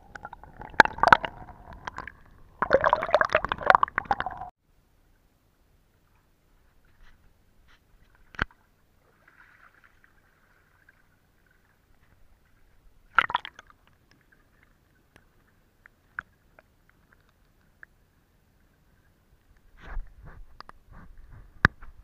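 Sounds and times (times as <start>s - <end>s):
water splashing in stream: 0.0s - 4.5s, 8.1s - 11.8s, 13.1s - 14.6s.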